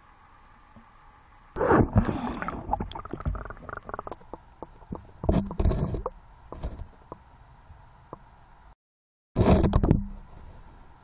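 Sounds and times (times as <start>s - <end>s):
muffled water sloshing and bubbling: 1.6s - 7.2s.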